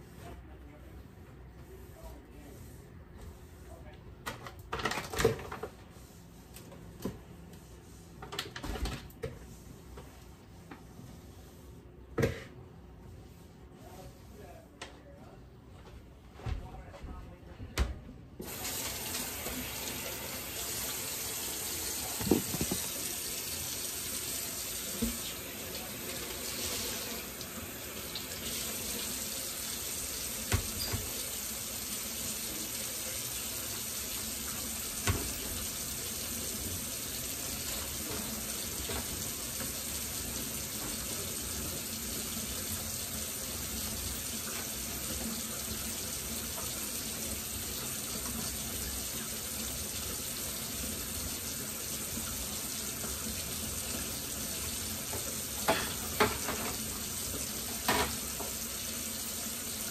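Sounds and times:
tap water running into sink: 18.4s - 59.9s.

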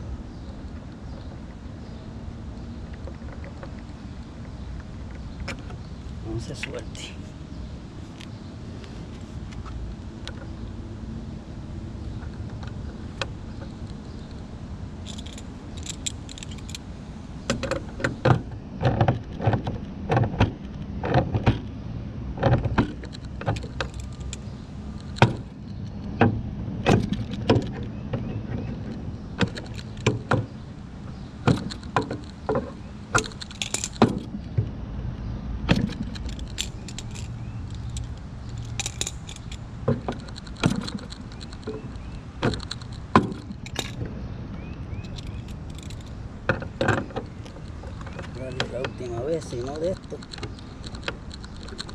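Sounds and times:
metallic clicks of hand tools: 15.0s - 16.8s, 35.7s - 44.0s, 45.0s - 51.9s.

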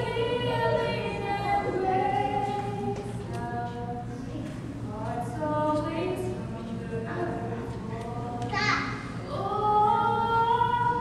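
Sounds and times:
woman singing long held notes: 9.2s - 11.0s.

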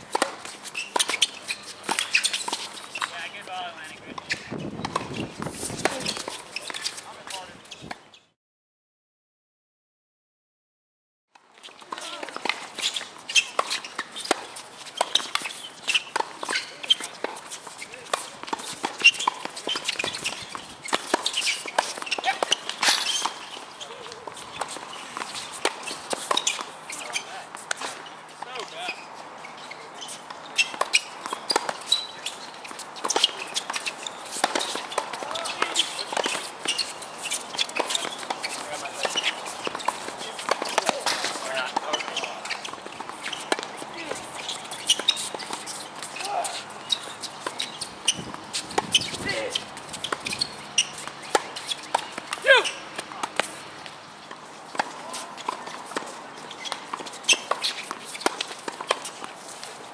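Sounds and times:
tennis ball bouncing: 0.1s - 3.4s, 4.2s - 7.0s, 11.8s - 28.7s, 30.4s - 59.7s
sneaker scuffs: 4.1s - 7.9s, 29.6s - 59.8s
footsteps on court: 11.6s - 59.9s
tennis racket strikes: 33.0s - 53.6s.

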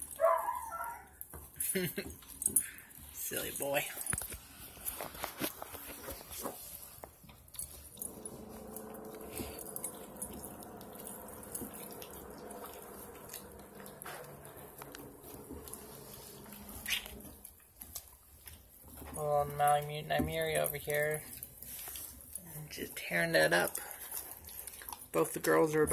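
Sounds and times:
puppy crunching bone: 4.0s - 19.2s, 23.7s - 25.9s
steady hum: 7.9s - 17.5s.

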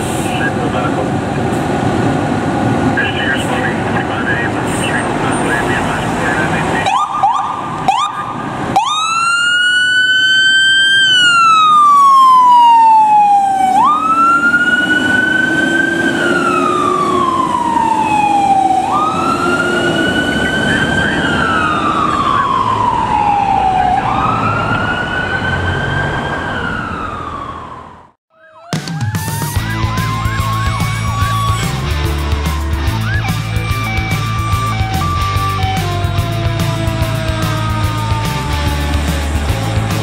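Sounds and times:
fire engine siren wailing: 0.0s - 40.0s
truck engine running: 29.6s - 40.0s.

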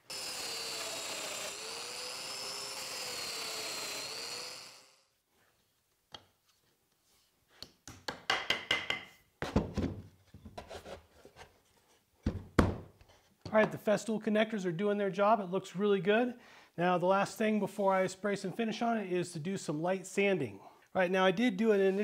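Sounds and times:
power tool motor running: 0.0s - 5.1s.

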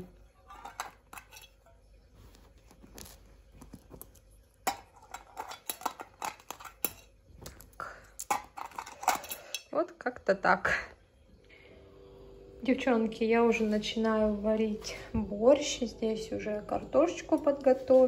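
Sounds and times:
faint handling noise: 0.4s - 9.5s
coins clinking into piggy bank: 8.2s - 9.6s.

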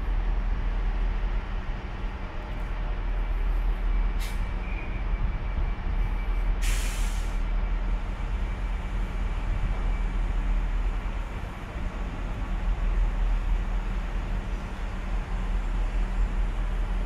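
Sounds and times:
air brake hiss: 4.2s - 4.5s, 6.6s - 7.4s.

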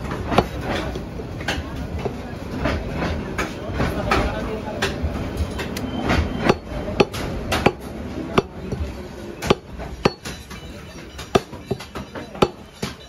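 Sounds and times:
cleaver chopping on wooden block: 6.4s - 10.6s, 11.2s - 13.0s.

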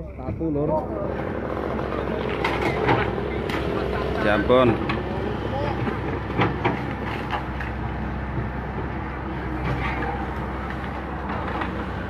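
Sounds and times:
excavator diesel engine running: 0.0s - 12.0s.

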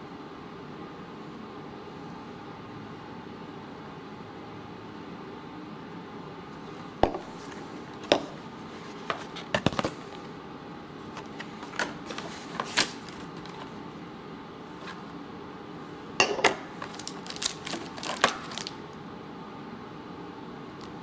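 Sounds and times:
plastic packaging clicks and clacks: 16.8s - 18.8s.

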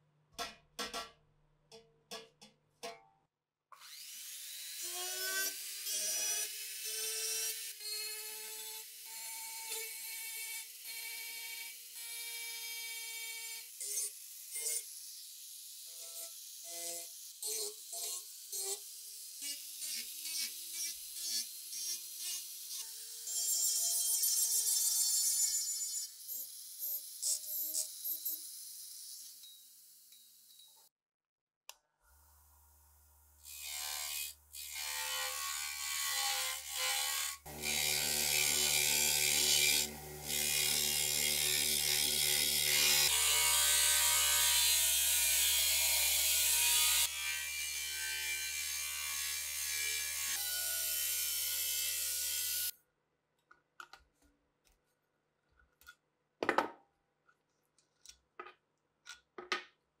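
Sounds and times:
bench grinder motor hum: 37.4s - 43.3s.

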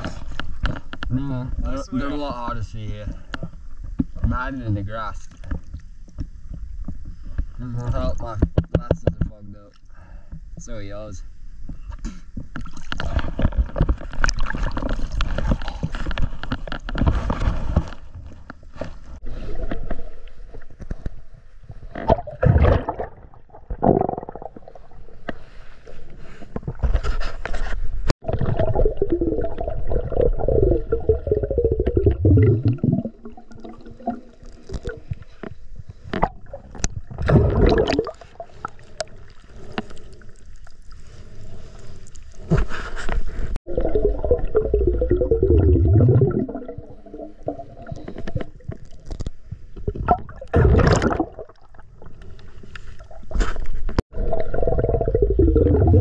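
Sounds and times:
water sloshing underwater: 11.6s - 56.0s.

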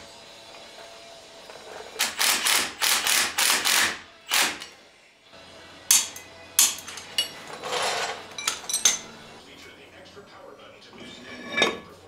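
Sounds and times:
impact driver hammering: 2.0s - 4.7s.

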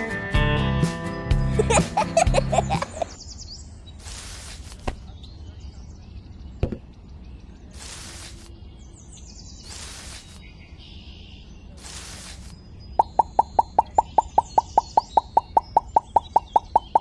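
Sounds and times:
rustling leaves and stems: 3.9s - 5.2s, 7.6s - 8.8s, 9.5s - 10.7s, 11.7s - 13.5s.

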